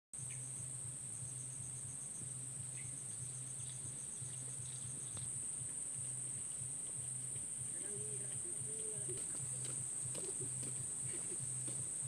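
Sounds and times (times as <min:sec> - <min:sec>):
faint low hum: 0:00.2 - 0:12.0
insect pulsed chirps: 0:00.2 - 0:12.0
insects high-pitched drone: 0:00.2 - 0:12.0.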